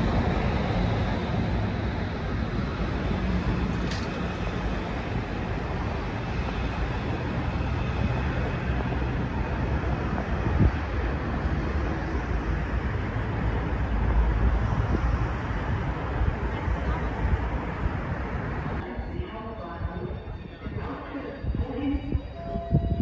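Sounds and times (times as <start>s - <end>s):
high-speed train rumble: 0.0s - 23.0s
wind on microphone: 4.7s - 23.0s.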